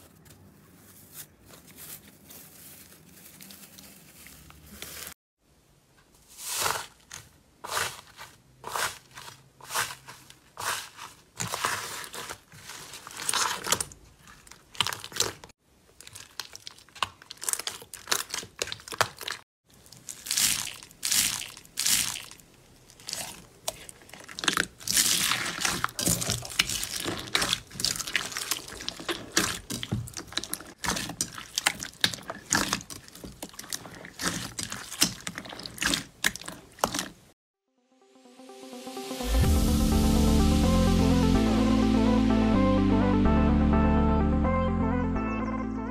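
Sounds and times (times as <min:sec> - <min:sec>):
slime crunching and popping: 0:13.1 - 0:37.2.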